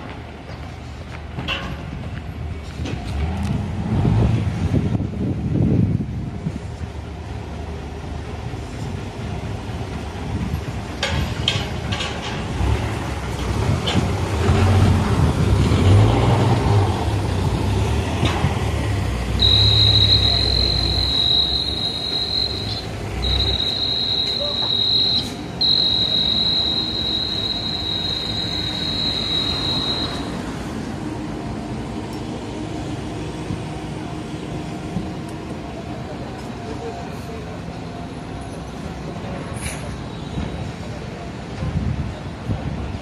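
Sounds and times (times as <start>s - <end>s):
diesel engine rumble: 0.0s - 43.0s
street noise: 0.0s - 43.0s
high-pitched electronic tone: 19.4s - 30.3s.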